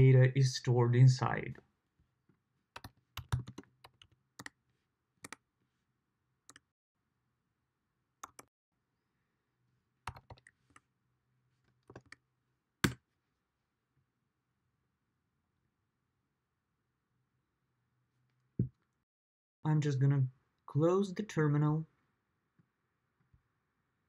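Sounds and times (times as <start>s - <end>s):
keyboard typing clicks: 2.8s - 4.5s, 8.2s - 8.5s, 10.1s - 10.5s.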